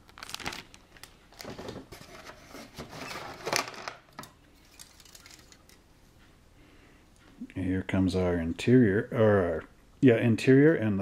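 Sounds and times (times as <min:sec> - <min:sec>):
plastic bag crinkling: 0:00.0 - 0:04.0, 0:04.6 - 0:05.8.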